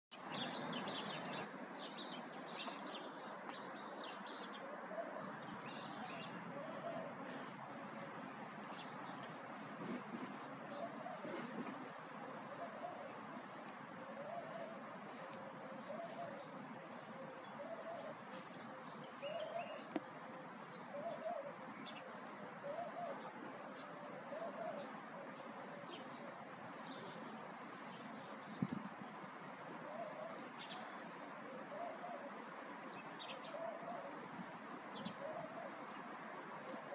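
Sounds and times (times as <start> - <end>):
small birds chirping: 0.1 - 7.5
steady background noise: 0.2 - 36.9
dove cooing: 4.3 - 8.1, 9.8 - 13.4, 14.0 - 19.9, 20.8 - 27.2, 29.8 - 32.6, 33.2 - 36.0, 36.6 - 36.9.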